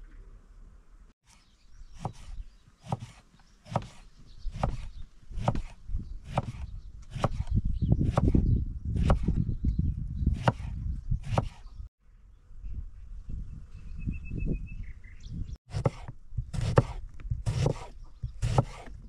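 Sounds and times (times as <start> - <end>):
knife chopping on wooden board: 2.0 - 7.5, 9.0 - 9.3, 10.4 - 11.6, 15.7 - 18.9.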